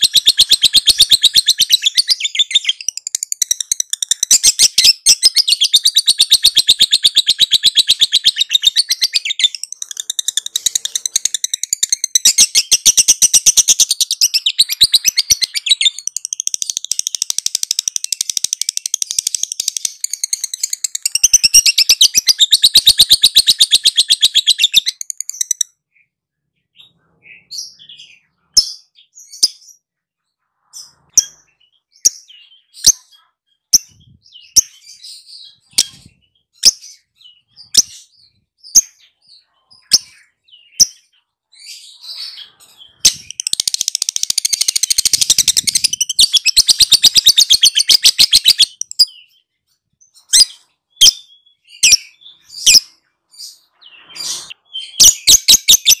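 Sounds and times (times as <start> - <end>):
lovebird chattering trill: 0.0 - 25.7, 42.1 - 49.3
lovebird chirps: 0.0 - 30.0, 30.6 - 56.0.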